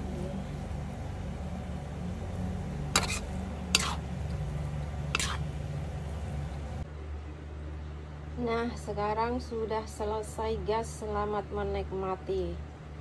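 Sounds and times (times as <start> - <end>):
steady low hum: 0.0 - 13.0
spatula stirring in a wok: 1.9 - 6.8
spatula clanking against wok: 2.9 - 4.0, 5.1 - 5.4.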